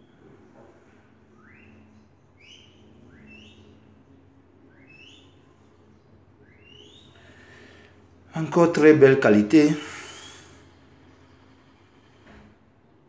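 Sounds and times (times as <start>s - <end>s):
bird whistling rising notes: 1.2s - 7.7s, 9.7s - 11.8s.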